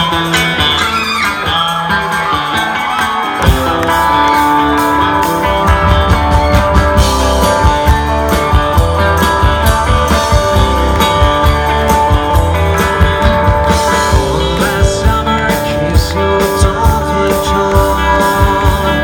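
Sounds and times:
electric guitars: 0.0s - 19.0s
live rock band playing: 0.0s - 19.0s.

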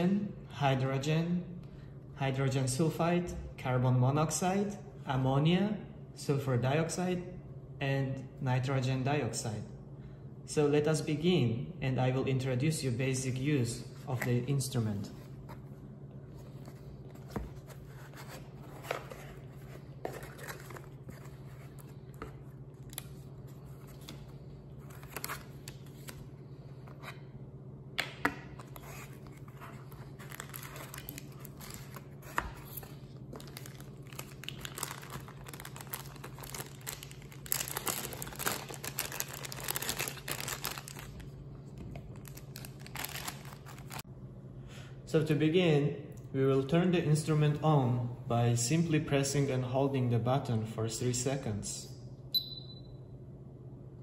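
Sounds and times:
steady low hum: 0.0s - 54.0s
cardboard rustling and scraping: 16.3s - 22.5s.

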